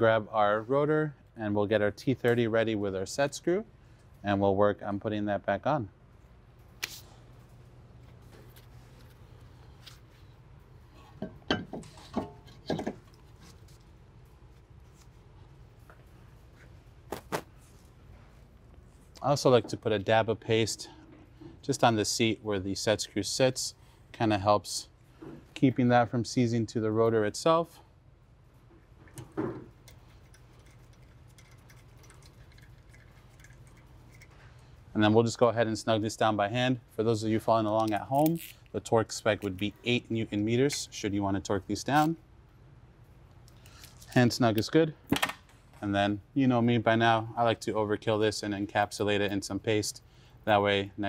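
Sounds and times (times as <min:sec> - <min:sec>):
low steady hum: 0:00.0 - 0:51.0
metal clunks and knocks: 0:11.2 - 0:13.1.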